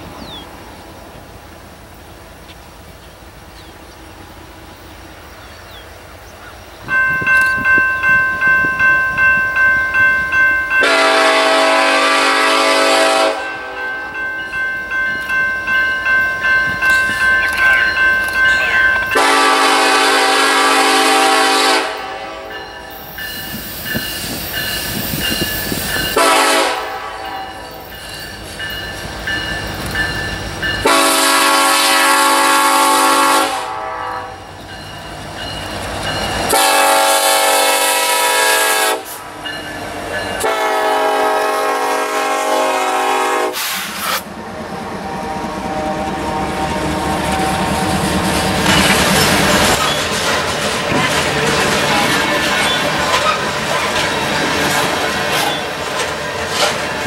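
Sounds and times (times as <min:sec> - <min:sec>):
train cars rumbling and clacking: 0:00.0 - 0:57.0
locomotive air horn blasts: 0:10.7 - 0:13.9, 0:19.1 - 0:22.6, 0:26.2 - 0:27.6, 0:30.8 - 0:34.5, 0:36.5 - 0:39.2, 0:40.4 - 0:44.3, 0:45.1 - 0:47.7.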